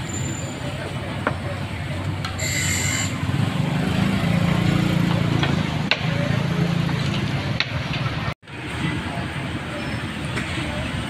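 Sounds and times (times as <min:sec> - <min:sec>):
motor vehicle engine running: 0:00.7 - 0:08.8
high-pitched squeal: 0:02.4 - 0:03.4.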